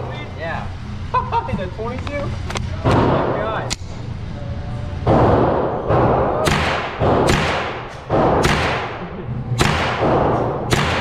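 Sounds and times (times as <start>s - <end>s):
rifle shots echoing indoors: 5.1s - 11.0s.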